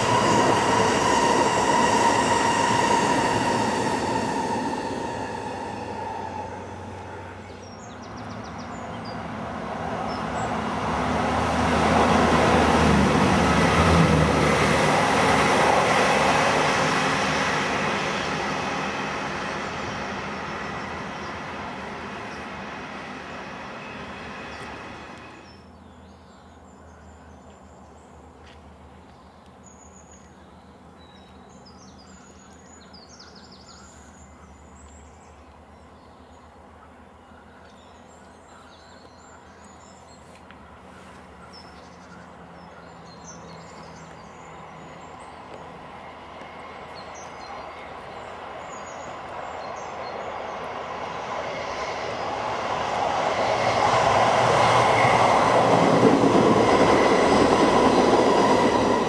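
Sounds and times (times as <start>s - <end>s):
diesel train passing: 0.0s - 59.0s
distant diesel train hum: 0.0s - 59.0s
birds chirping: 46.8s - 59.0s.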